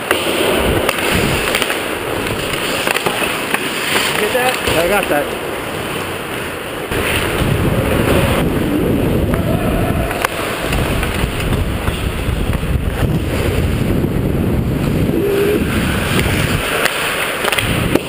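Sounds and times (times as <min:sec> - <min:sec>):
skate blades scraping ice: 0:00.0 - 0:08.4, 0:10.1 - 0:14.0, 0:14.7 - 0:18.0
wind rumble on microphone: 0:00.5 - 0:01.5, 0:06.9 - 0:16.8, 0:17.6 - 0:18.0.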